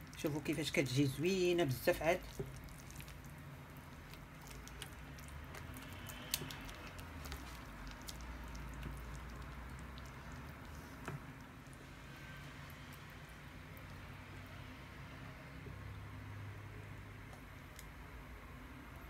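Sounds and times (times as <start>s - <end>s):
wet squelching of sauce: 0.0s - 14.6s.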